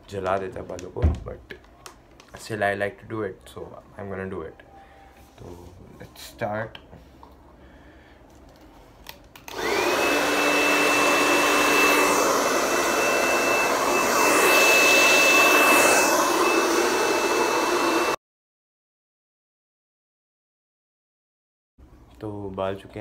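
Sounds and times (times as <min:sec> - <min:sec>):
hair dryer blowing: 0:09.4 - 0:18.2.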